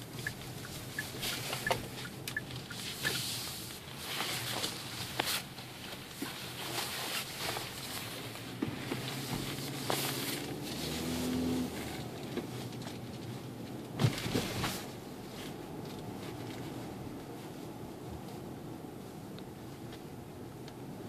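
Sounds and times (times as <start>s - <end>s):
car engine humming in cabin: 0.0s - 21.0s.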